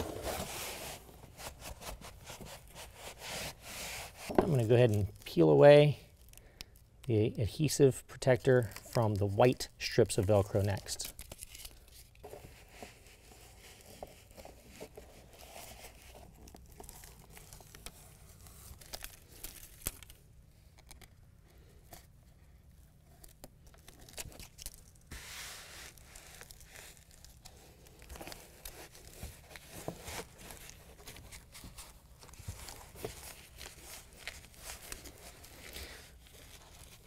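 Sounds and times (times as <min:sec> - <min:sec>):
hands rubbing strips: 0:00.0 - 0:05.0
plastic liner crinkling: 0:23.0 - 0:37.0.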